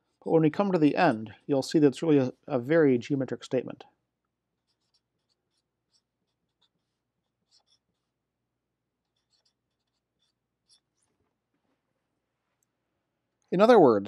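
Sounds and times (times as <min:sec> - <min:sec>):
marker writing on paper: 0:04.6 - 0:08.1, 0:09.1 - 0:11.1.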